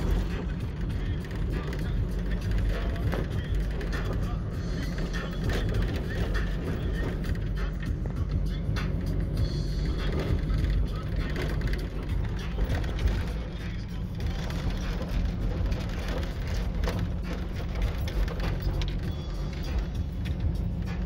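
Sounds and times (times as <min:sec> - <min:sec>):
vehicle engine and tyre rumble: 0:00.0 - 0:21.0
knocks and rattles from bumps: 0:09.4 - 0:21.0.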